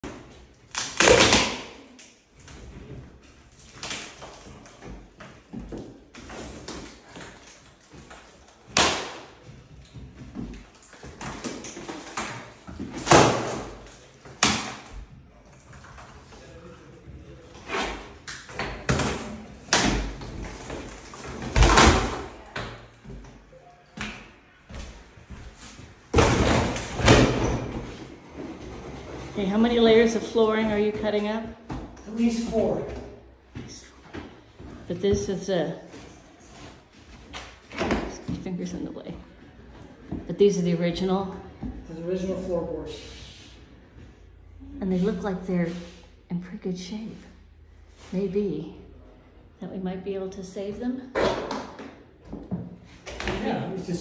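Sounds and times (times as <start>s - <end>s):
vinyl flooring tearing and crackling: 0.0s - 15.0s.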